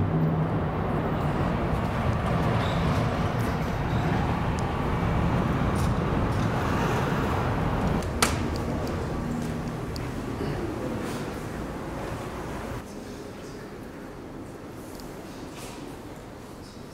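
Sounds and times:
passing vehicles rumbling: 0:00.0 - 0:12.8.

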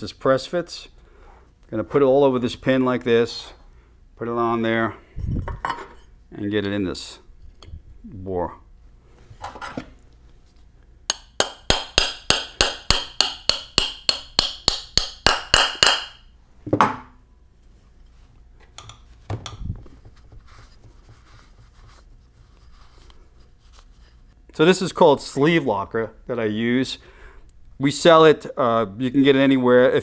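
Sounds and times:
hammer tapping metal pin: 0:11.1 - 0:16.2.

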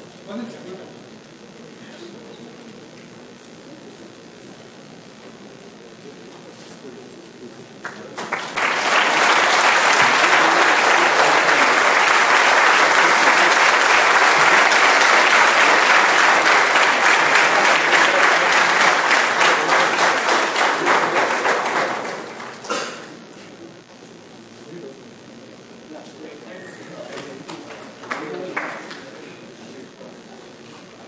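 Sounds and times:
audience applause: 0:07.8 - 0:23.1, 0:27.0 - 0:29.3.

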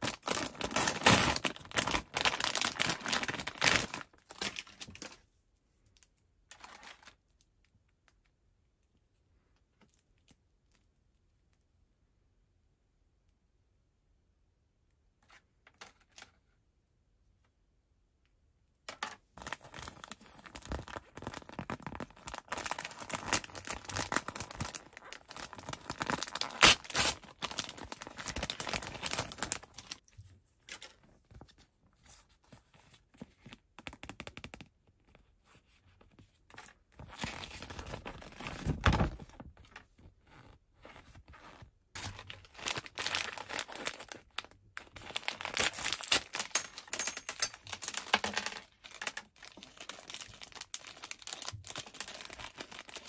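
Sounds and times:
foil wrapper crinkling and tearing: 0:00.0 - 0:05.2, 0:19.4 - 0:30.0, 0:42.0 - 0:53.0.

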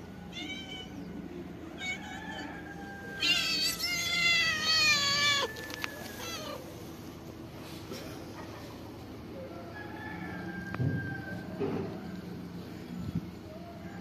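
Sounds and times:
cat meowing: 0:03.2 - 0:06.6.

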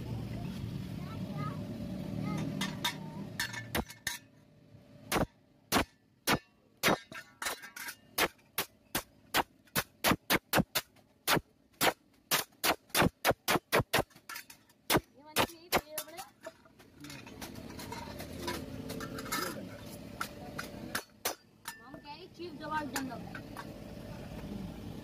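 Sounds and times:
hammer striking metal on anvil: 0:05.1 - 0:16.3.

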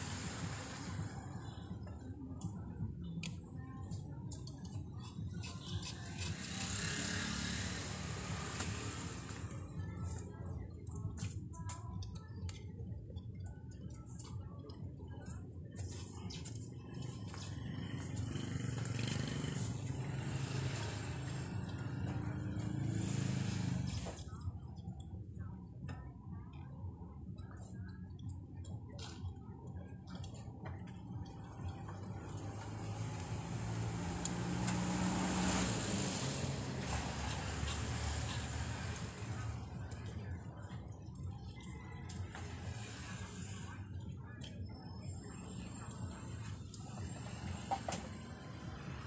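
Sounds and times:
vehicle engine running: 0:16.8 - 0:24.8, 0:30.7 - 0:41.1.

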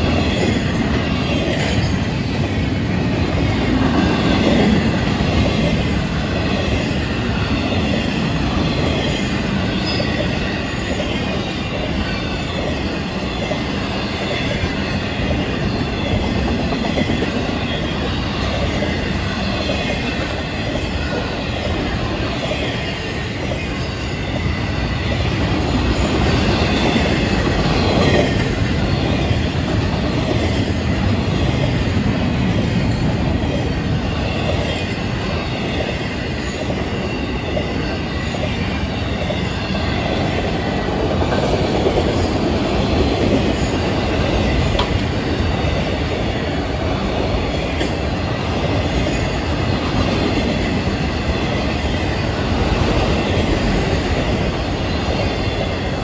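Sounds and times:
freight train wheels clattering: 0:00.0 - 0:56.0
high wheel squeal: 0:07.4 - 0:20.2.

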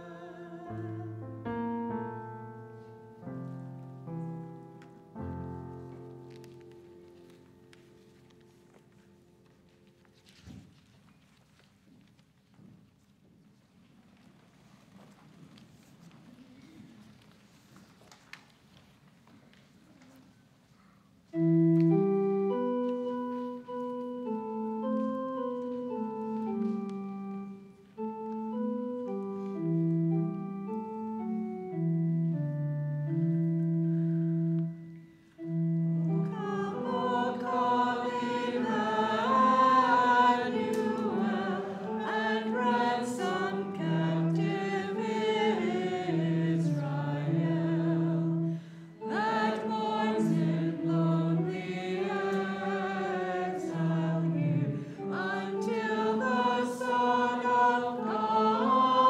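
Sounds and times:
group singing a hymn: 0:00.0 - 0:01.2, 0:36.1 - 0:59.0
church organ chords: 0:00.0 - 0:10.0, 0:21.3 - 0:59.0.

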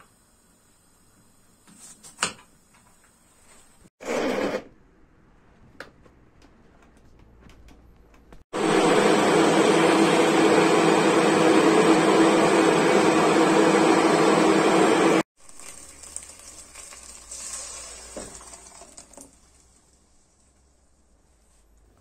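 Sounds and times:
blender motor running: 0:04.0 - 0:04.6, 0:08.6 - 0:15.3
puree pouring into pot: 0:15.4 - 0:20.0.

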